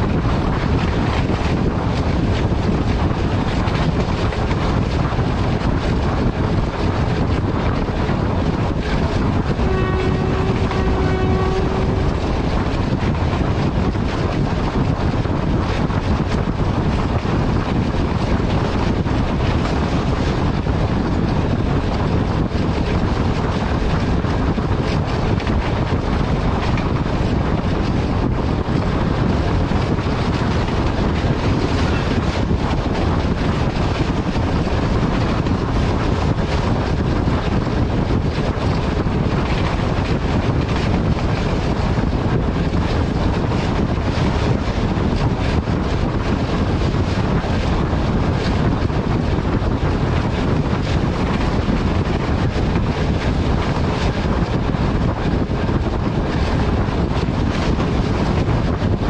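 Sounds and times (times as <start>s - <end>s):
diesel locomotive engine: 0.0s - 59.0s
rail noise: 0.0s - 59.0s
wind buffeting microphone: 0.0s - 59.0s
train horn: 9.5s - 13.1s.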